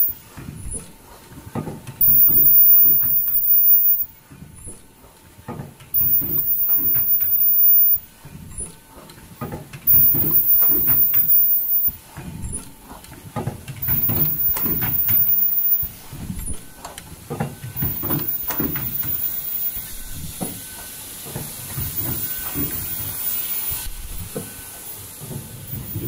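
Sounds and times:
machine clunking and knocking: 0.0s - 26.0s
steady hiss: 13.8s - 26.0s.

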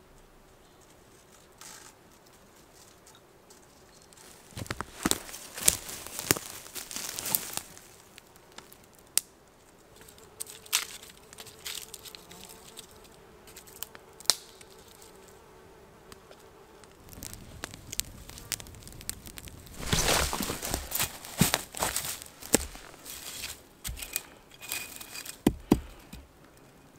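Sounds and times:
rustling: 0.1s - 8.9s, 16.2s - 26.6s
insect buzzing: 9.8s - 24.5s.

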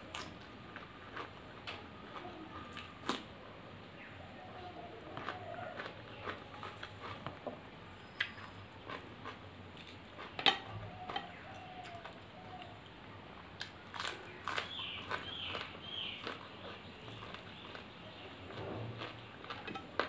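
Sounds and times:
chewing: 0.1s - 3.2s, 5.1s - 7.4s, 8.2s - 12.8s, 13.6s - 20.0s
fingers mixing food on steel plate: 10.2s - 12.7s, 19.4s - 20.0s.

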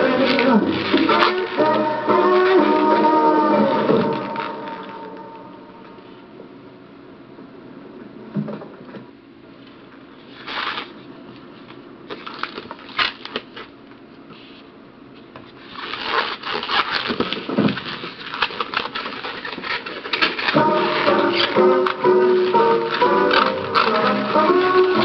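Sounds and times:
balloons rubbing and squeaking: 0.0s - 5.1s, 15.6s - 25.0s
music: 0.0s - 6.0s, 20.5s - 25.0s.

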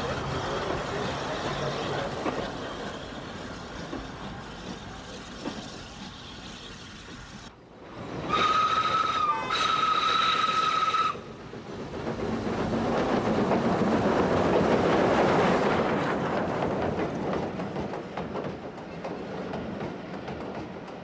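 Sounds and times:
train wheels clicking over rail joints: 0.0s - 7.5s, 8.3s - 21.0s
locomotive passing: 0.0s - 21.0s
steam locomotive whistle: 8.2s - 11.3s.

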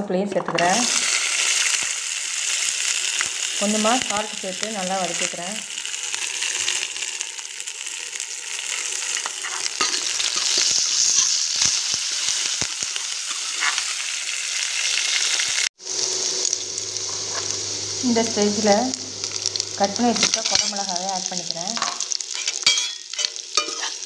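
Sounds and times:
shallots sizzling in hot oil: 0.4s - 24.0s
steel ladle stirring: 21.8s - 24.0s.

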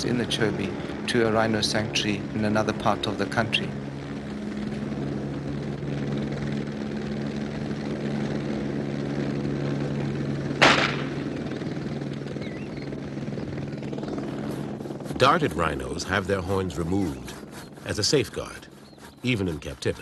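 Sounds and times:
helicopter engine and rotor hum: 0.0s - 20.0s
dart gun firing crack: 10.6s - 11.1s.

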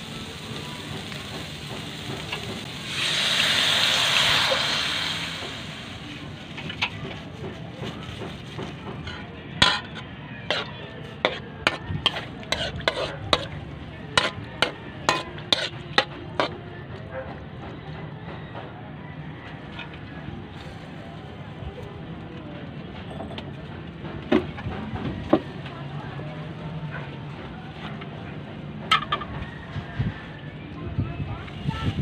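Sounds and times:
liquid sizzling in a wok: 0.0s - 6.8s, 10.5s - 13.6s
ladle scraping a wok: 8.2s - 16.6s.

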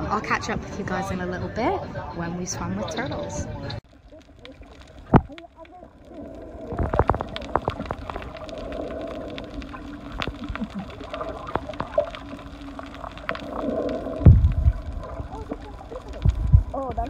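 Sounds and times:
low underwater hum: 1.0s - 17.0s
clicks and crackles in water: 3.6s - 17.0s
heavy low thumps: 14.2s - 17.0s.

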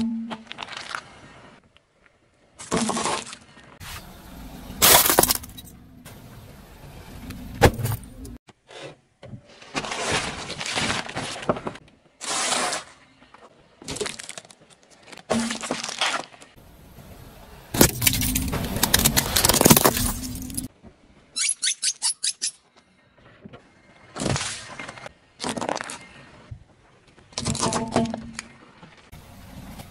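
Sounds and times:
tyre crushing plastic objects: 17.8s - 20.7s.

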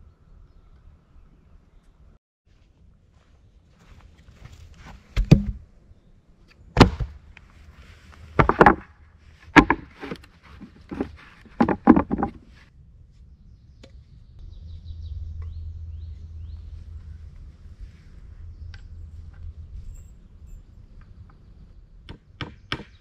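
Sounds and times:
sharp knocks and thuds: 5.1s - 5.6s, 6.7s - 7.2s, 8.4s - 12.5s
faint low rumble: 12.5s - 22.0s.

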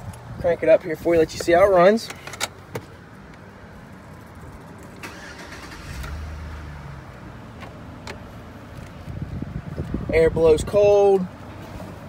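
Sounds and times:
car engine starting and idling: 0.9s - 10.4s.

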